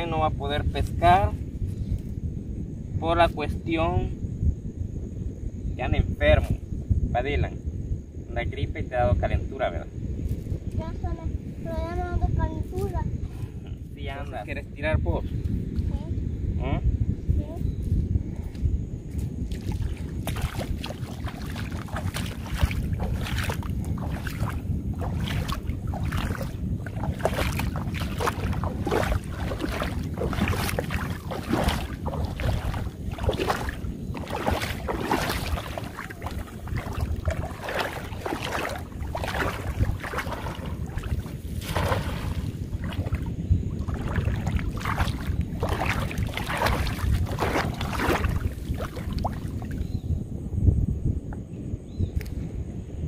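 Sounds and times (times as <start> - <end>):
wind on microphone: 0.0 - 53.0
water sloshing and splashing: 19.4 - 49.9.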